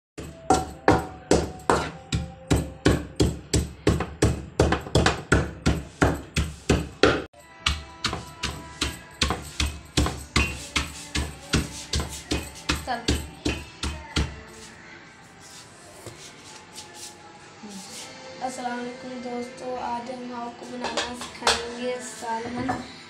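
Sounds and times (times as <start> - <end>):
pestle pounding in metal pot: 0.2 - 14.4.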